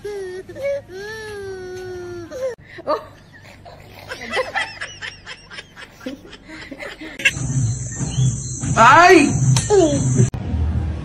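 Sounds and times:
baby giggling: 2.3s - 7.4s.

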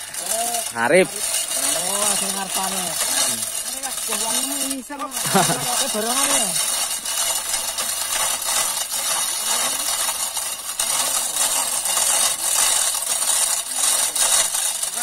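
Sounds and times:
dense rattling and scraping: 0.0s - 15.0s.

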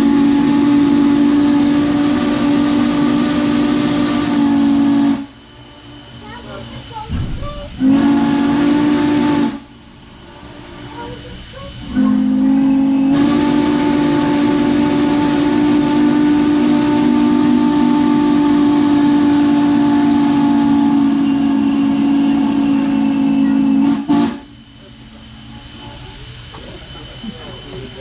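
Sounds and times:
steam whistle chord: 0.0s - 6.0s, 7.8s - 9.8s, 11.9s - 24.7s
steam hissing: 0.0s - 28.0s.

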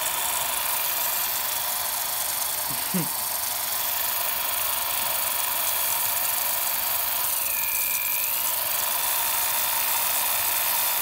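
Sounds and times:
drill whine: 0.0s - 11.0s
electric drill running: 0.0s - 11.0s.

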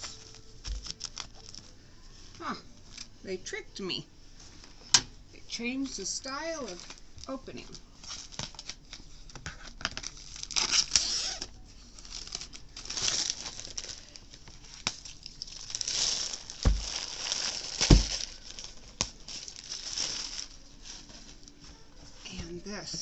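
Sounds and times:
plastic wrapping crinkling and tearing: 0.0s - 3.2s, 5.8s - 22.4s
dull thumps: 16.6s - 17.0s, 17.8s - 18.2s.

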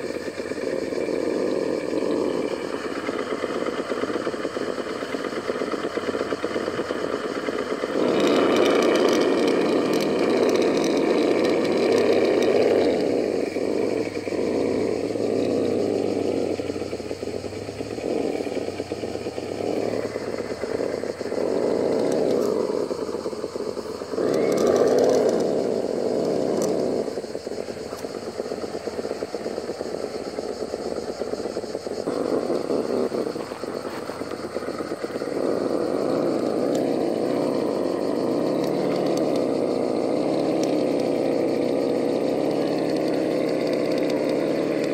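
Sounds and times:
toy car electric motor whining: 0.0s - 44.9s.

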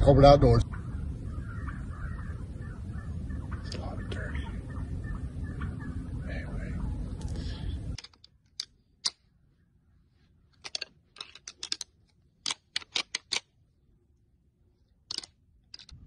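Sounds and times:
hunting gear clicking and snapping: 8.0s - 9.2s, 10.5s - 13.5s, 15.0s - 16.0s.

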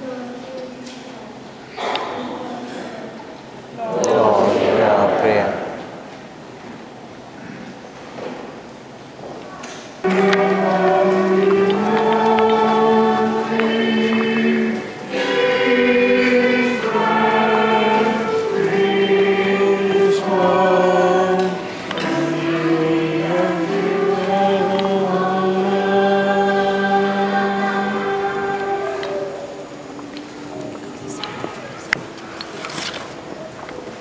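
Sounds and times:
choir singing a hymn: 3.8s - 6.5s, 10.0s - 32.6s.

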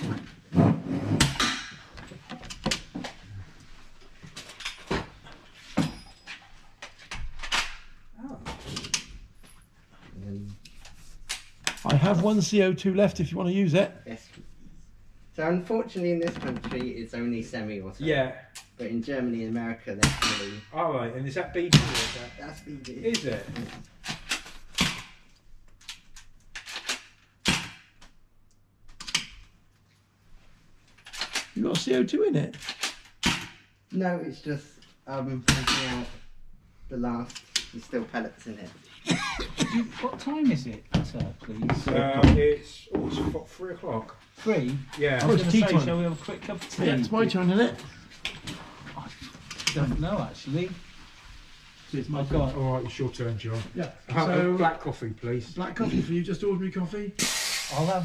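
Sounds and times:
air guns firing: 57.2s - 57.9s.

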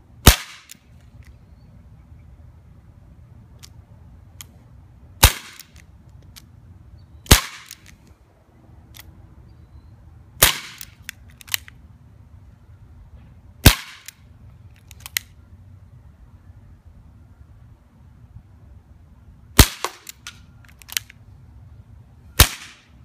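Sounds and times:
bb gun shots cracking: 0.2s - 0.8s, 5.2s - 5.8s, 7.3s - 7.9s, 10.4s - 11.6s, 13.6s - 14.1s, 19.6s - 21.1s, 22.4s - 22.9s
light gun clicks: 8.9s - 9.1s, 10.5s - 11.8s, 13.9s - 15.4s, 19.8s - 21.2s.

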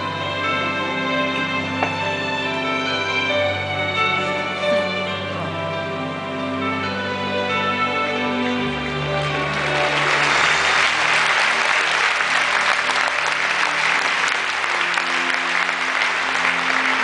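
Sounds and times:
show music: 0.0s - 17.0s
audience applauding: 9.2s - 17.0s.

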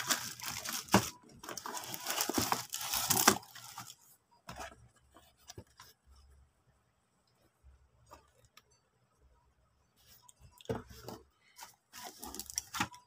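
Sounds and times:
packaging rustling and crinkling: 0.0s - 4.0s, 12.0s - 13.0s.

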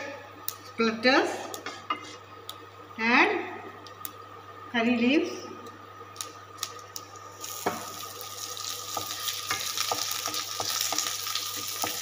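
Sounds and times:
leaves sizzling in hot oil: 7.3s - 12.0s.

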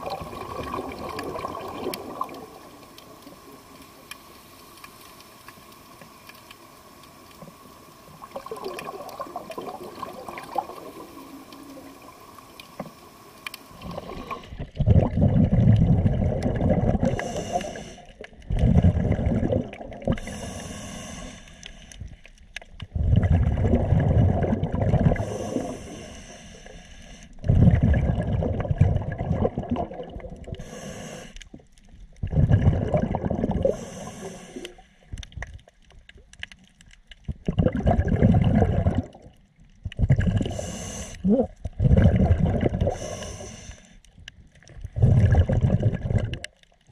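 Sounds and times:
bubbling exhalation underwater: 0.0s - 2.7s, 8.2s - 12.2s, 13.7s - 17.6s, 18.4s - 20.3s, 22.9s - 25.7s, 27.4s - 30.6s, 32.2s - 33.8s, 37.3s - 39.3s, 39.9s - 43.2s, 44.8s - 46.5s
faint steady hum: 0.0s - 46.9s
regulator inhale hiss: 17.0s - 18.2s, 20.1s - 22.2s, 25.2s - 27.5s, 30.5s - 31.6s, 33.6s - 35.1s, 40.4s - 41.3s, 42.9s - 44.1s.

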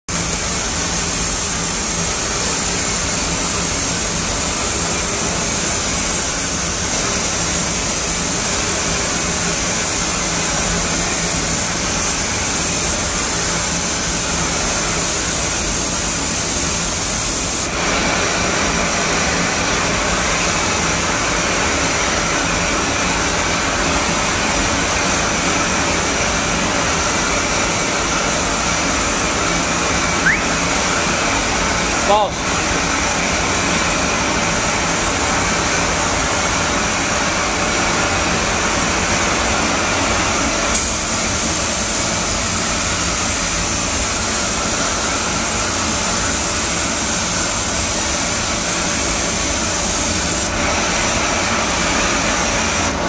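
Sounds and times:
ventilation air rushing: 0.1s - 53.0s.

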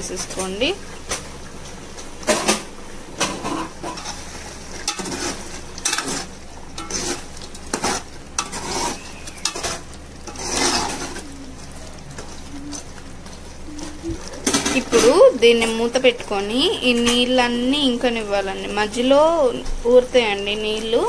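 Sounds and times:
ladle clinking and scraping pot: 2.3s - 16.0s.

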